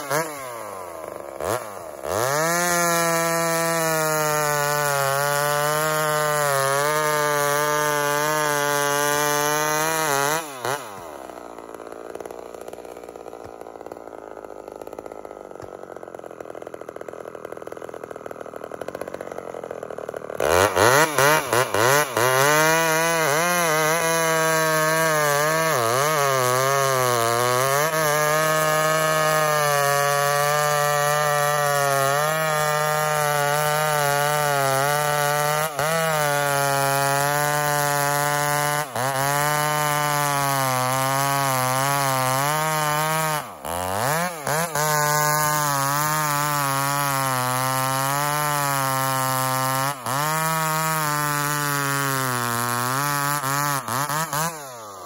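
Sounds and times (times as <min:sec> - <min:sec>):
chainsaw cutting log: 0:00.0 - 0:55.0.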